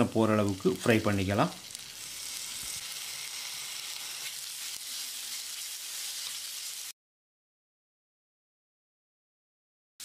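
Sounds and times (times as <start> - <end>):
onions sizzling in hot oil: 0.0 - 7.0.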